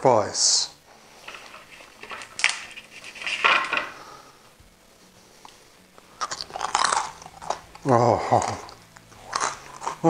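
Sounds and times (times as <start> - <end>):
pork crackling crunching: 1.2 - 4.0, 5.4 - 10.0.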